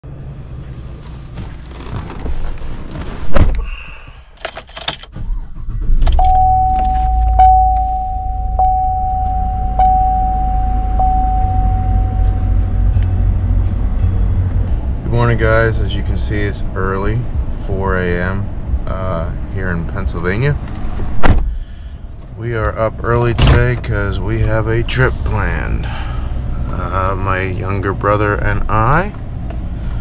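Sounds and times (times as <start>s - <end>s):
car engine running: 0.0s - 30.0s
electronic warning chime: 6.2s - 13.0s
car door shutting hard: 21.2s - 21.6s.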